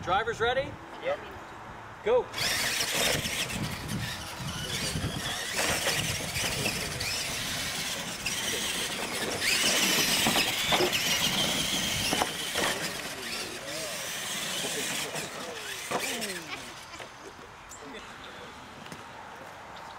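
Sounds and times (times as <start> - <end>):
toy truck electric motors whining: 2.3 - 17.2.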